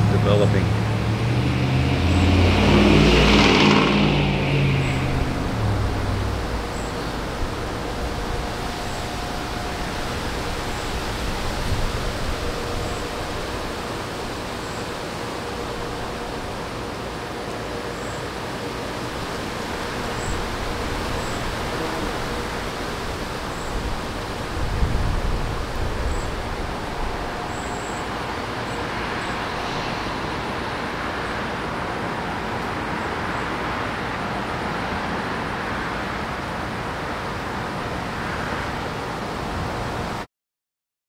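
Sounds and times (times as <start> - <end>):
wind buffeting microphone: 0.0 - 17.2, 19.0 - 32.3
rushing wind: 0.0 - 40.3.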